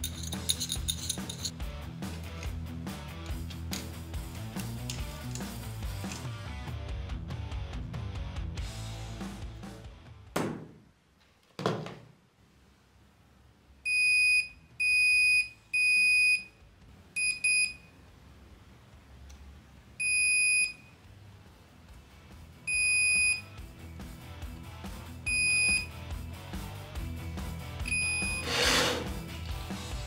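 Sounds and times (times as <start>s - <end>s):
multimeter continuity beeps: 13.9s - 16.5s, 17.2s - 17.9s, 20.0s - 20.9s, 22.7s - 23.5s, 25.3s - 25.9s, 27.8s - 28.4s.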